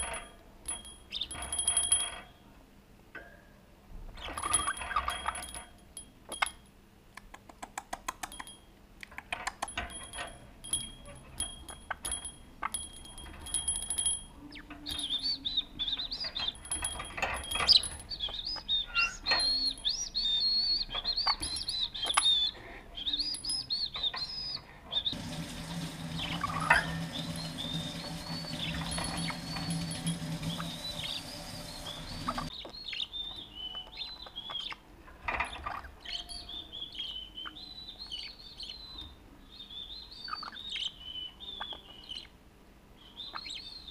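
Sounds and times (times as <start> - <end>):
cage bell jingling: 0.0 - 2.4, 4.3 - 6.6, 9.7 - 22.6, 26.1 - 32.5
low hum: 25.1 - 32.5.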